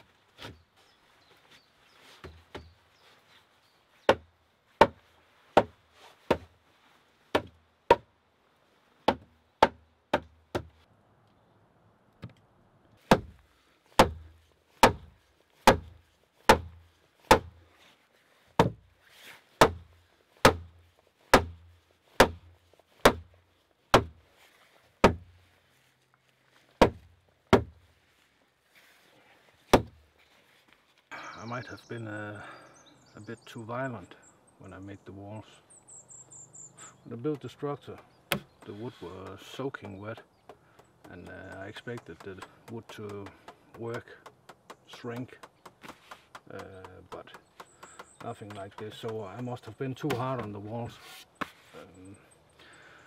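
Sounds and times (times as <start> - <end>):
hand tool striking wooden logs: 4.0 - 6.5, 7.3 - 8.1, 9.0 - 10.8, 13.0 - 17.6, 18.6 - 18.9, 19.6 - 24.2, 25.0 - 25.4, 26.8 - 27.8, 29.7 - 30.0, 37.3 - 51.6.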